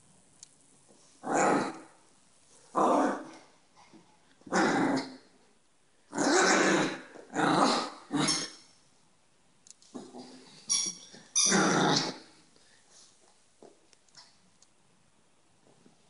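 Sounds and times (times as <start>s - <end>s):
small dog growling playfully: 1.2s - 2.0s, 2.7s - 3.4s, 4.4s - 5.2s, 6.1s - 8.5s, 11.5s - 12.4s.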